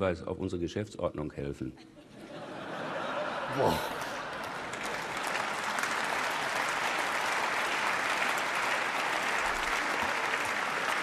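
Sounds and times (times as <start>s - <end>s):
audience applause: 3.5s - 11.0s.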